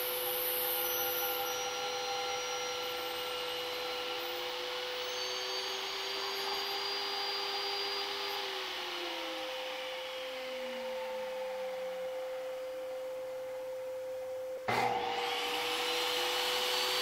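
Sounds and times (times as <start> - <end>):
table saw motor whine: 0.0 - 17.0
saw blade cutting wood: 0.3 - 8.5.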